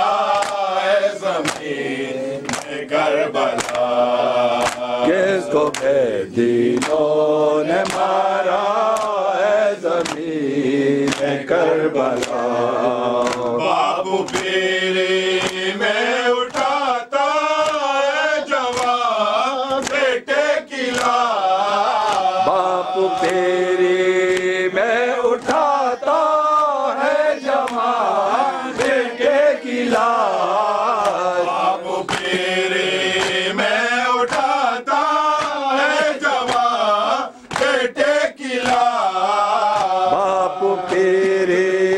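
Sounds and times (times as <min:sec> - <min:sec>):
man chanting a lament: 0:00.0 - 0:41.9
rhythmic chest-beating strokes: 0:00.0 - 0:41.9.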